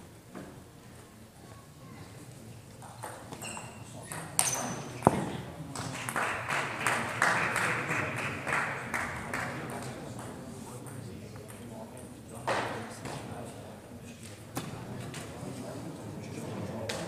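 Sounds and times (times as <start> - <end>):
shoe squeaks: 3.4 - 5.0.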